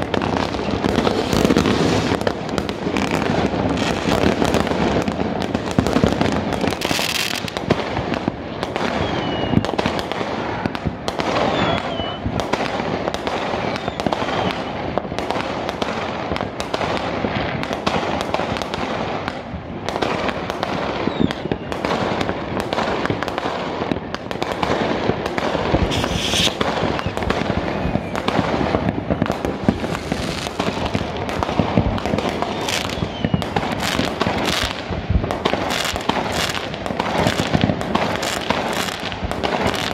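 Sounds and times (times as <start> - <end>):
fireworks crackling and banging: 0.0 - 39.9
firework whistles: 8.7 - 10.6, 11.2 - 12.6, 13.3 - 14.8, 20.8 - 22.0, 25.7 - 30.8, 32.1 - 34.8.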